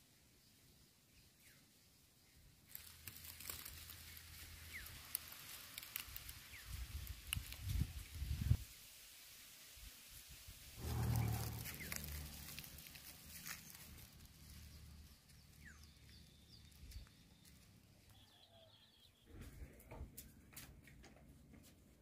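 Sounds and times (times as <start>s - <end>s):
loud low sound: 10.8s - 13.0s
birds chirping and calling: 10.8s - 17.6s.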